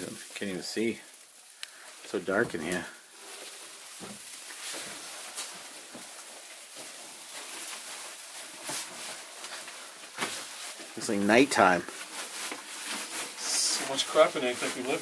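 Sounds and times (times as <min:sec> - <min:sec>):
steady hiss: 0:00.0 - 0:15.0
faint knocks and rustles: 0:02.3 - 0:11.0.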